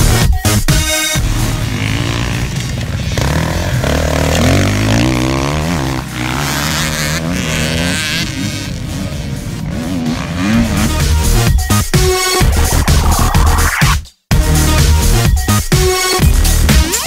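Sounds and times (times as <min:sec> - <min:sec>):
dirt bike engine revving: 0:01.2 - 0:11.4.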